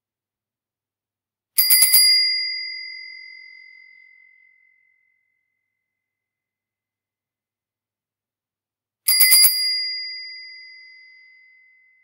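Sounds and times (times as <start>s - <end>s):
bicycle bell trill: 1.6s - 5.0s, 9.1s - 12.0s.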